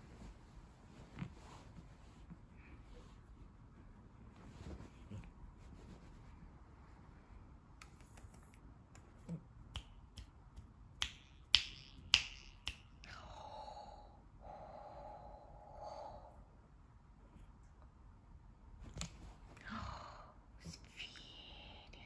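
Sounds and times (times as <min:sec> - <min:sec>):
fingers snapping: 0:07.8 - 0:12.9.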